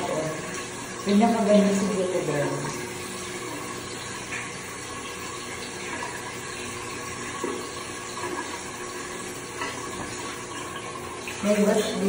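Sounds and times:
tap running into sink: 0:03.4 - 0:11.5.

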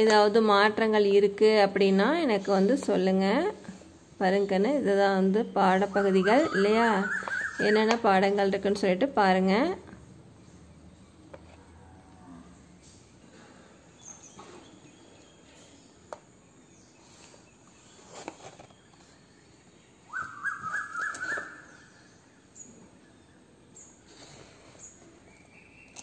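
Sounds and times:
bird chirping: 0:05.4 - 0:08.6, 0:13.9 - 0:26.0
book rustling in hands: 0:16.9 - 0:19.4.

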